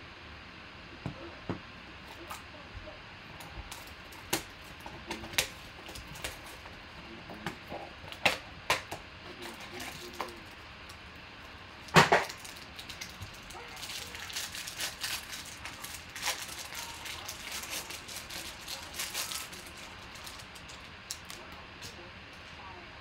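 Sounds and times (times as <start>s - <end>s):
cardboard snapping and clicking: 3.7s - 6.5s
pack wrapper crinkling: 9.4s - 22.0s.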